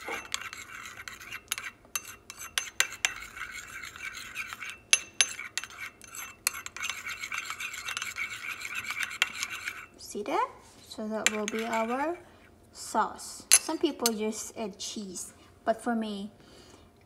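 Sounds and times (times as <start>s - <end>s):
metal spoon scraping ceramic bowl: 0.0s - 10.0s, 11.2s - 12.2s.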